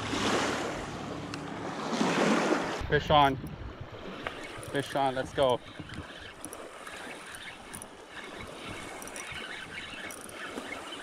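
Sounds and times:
small waves lapping: 0.0 - 11.0
faint high ticks: 4.2 - 11.0.

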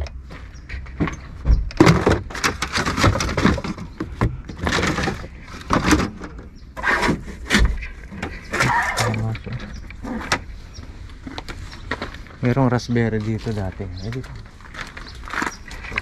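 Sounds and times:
plastic car parts rattling: 1.7 - 10.5, 14.1 - 16.0.

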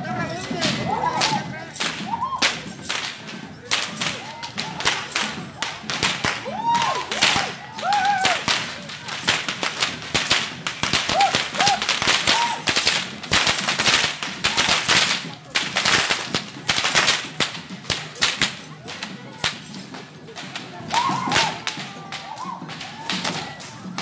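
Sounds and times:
whips cracking: 0.7 - 24.0.

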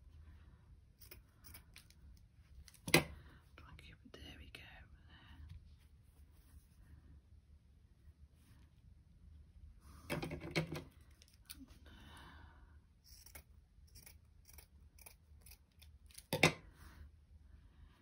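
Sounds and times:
scissors snipping fabric: 13.1 - 16.6.

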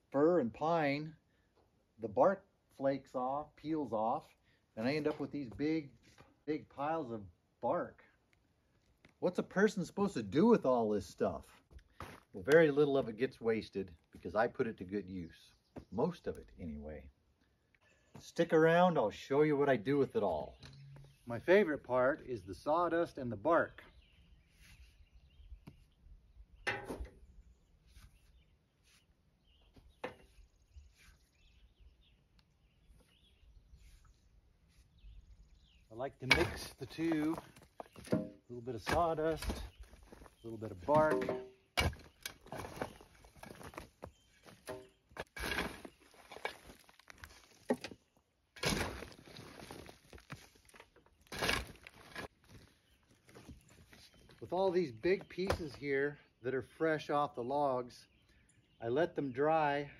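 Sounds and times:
faint birds chirping: 0.0 - 59.9
footsteps crunching on dry bark: 11.5 - 12.8, 36.5 - 38.2, 38.9 - 41.2, 41.9 - 55.8
shovel scraping sawdust: 36.2 - 37.5, 38.1 - 43.8, 44.5 - 47.5, 48.6 - 50.6, 51.2 - 52.5.

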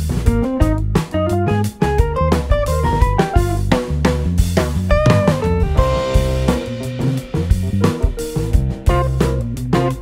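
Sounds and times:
drum beat: 0.0 - 10.0
melodic notes: 4.9 - 9.4.

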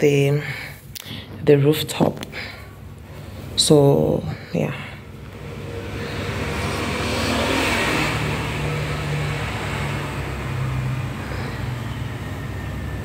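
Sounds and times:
vehicle engine passing: 4.3 - 13.0.

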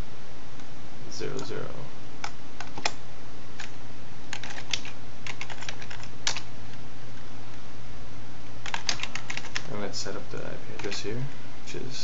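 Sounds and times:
low steady hum: 0.0 - 12.0
keyboard typing: 2.2 - 3.0, 3.6 - 6.5, 8.6 - 9.7, 10.8 - 11.0.

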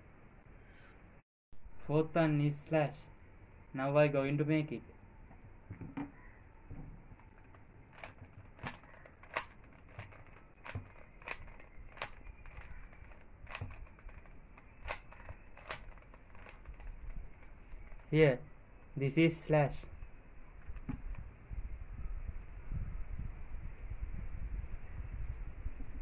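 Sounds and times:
puzzle cube clicking: 7.0 - 18.3.

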